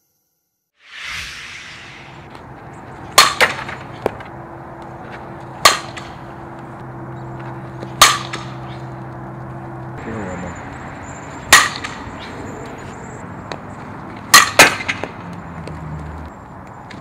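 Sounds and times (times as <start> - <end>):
bat hitting ball: 3.1 - 4.2, 5.6 - 6.3, 7.8 - 8.9, 11.5 - 12.3, 14.3 - 15.2.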